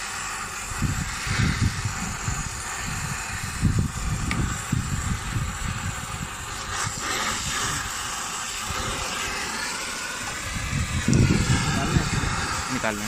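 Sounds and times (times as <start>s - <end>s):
torch flame hissing: 0.0s - 13.0s
low microphone rumbles: 10.4s - 12.8s.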